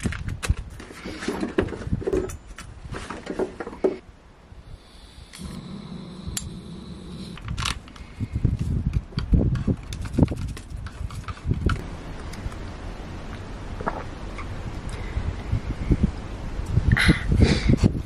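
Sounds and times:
steady low hum: 0:04.0 - 0:09.2, 0:11.6 - 0:18.0.

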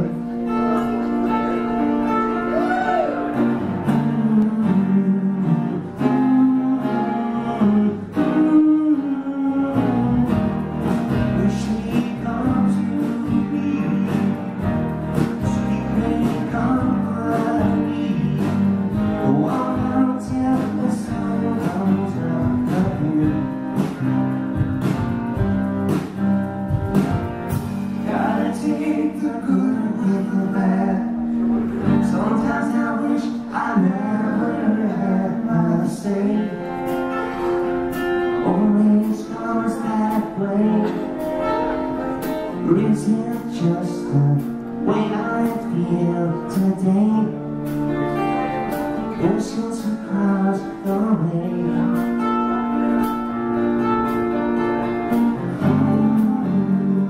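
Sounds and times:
man singing into a microphone: 0:00.0 - 0:24.0, 0:28.0 - 0:37.5, 0:38.2 - 0:47.7, 0:49.0 - 0:53.4, 0:55.3 - 0:57.0
strummed guitar: 0:00.0 - 0:57.0
steady beat: 0:22.5 - 0:28.0.

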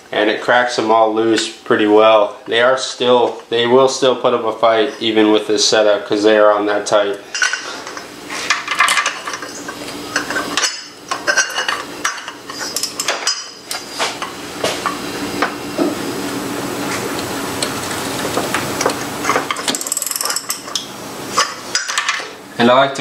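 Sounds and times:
steel tube clinking and clanking: 0:07.3 - 0:13.6, 0:18.8 - 0:22.3.

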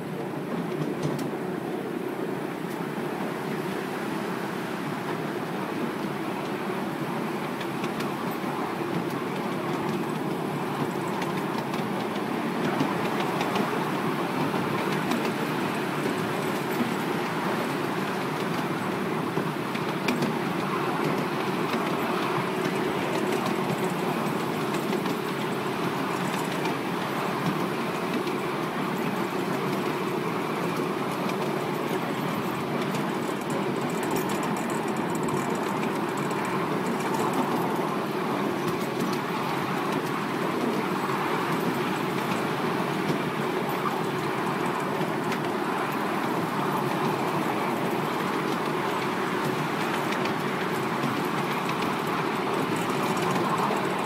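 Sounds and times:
train wheels rumbling on rails: 0:00.0 - 0:54.0.

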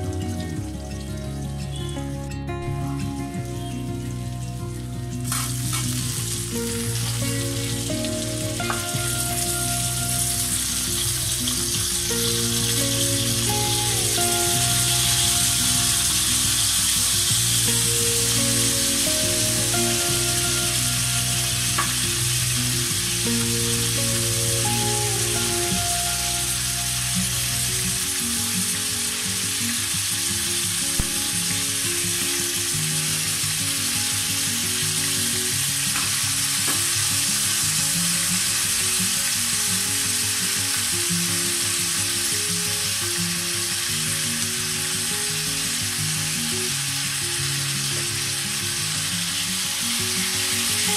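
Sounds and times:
slow background music: 0:00.0 - 0:50.9
food sizzling in oil: 0:03.5 - 0:50.9
sharp tap: 0:31.0 - 0:31.2.

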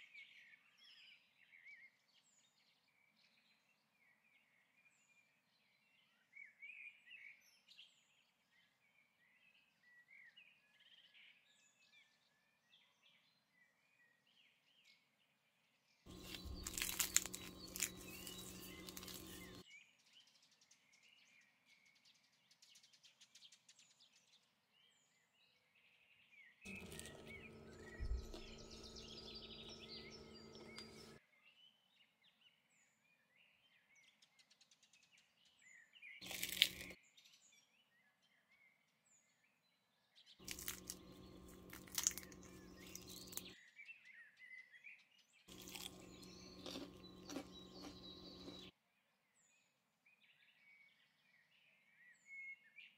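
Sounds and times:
low steady hum: 0:16.1 - 0:19.6, 0:26.7 - 0:31.2, 0:40.4 - 0:43.5
pastry crackling and crunching: 0:16.1 - 0:19.6, 0:26.7 - 0:31.2, 0:36.2 - 0:37.0, 0:40.4 - 0:43.6, 0:45.5 - 0:48.7
faint bird chirps: 0:26.7 - 0:31.2.

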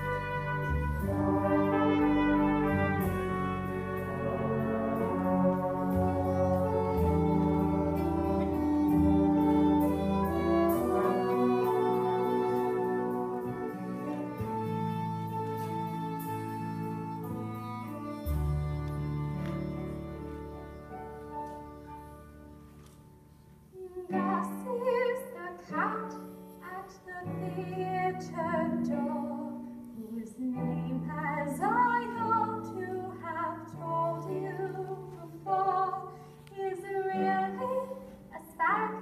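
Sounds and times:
orchestra playing: 0:00.0 - 0:23.7.

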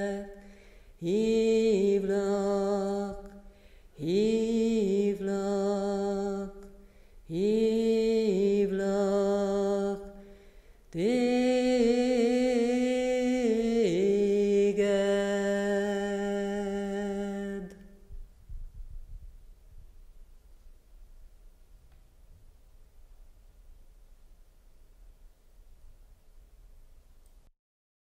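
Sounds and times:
person singing long notes: 0:00.0 - 0:10.2, 0:10.9 - 0:18.1.

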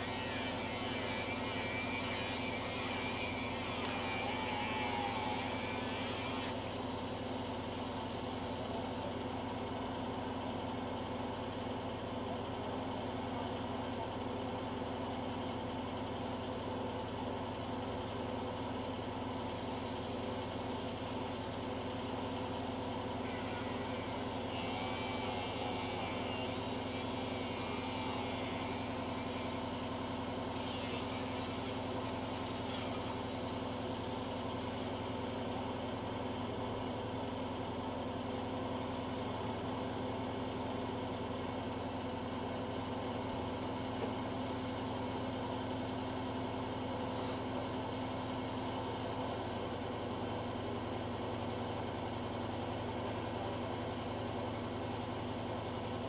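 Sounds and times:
distant angle grinder cutting: 0:00.0 - 0:09.6, 0:19.3 - 0:39.7.

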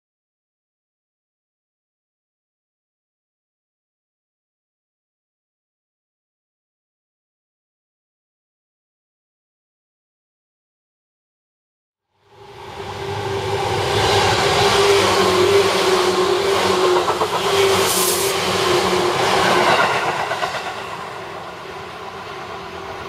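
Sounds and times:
train motor whine: 0:12.3 - 0:22.9
train wheels rumbling on rails: 0:12.3 - 0:23.0.

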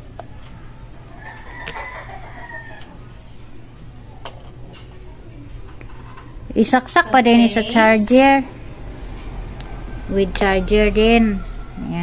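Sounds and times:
rooster crowing: 0:00.6 - 0:03.1, 0:09.6 - 0:12.0.

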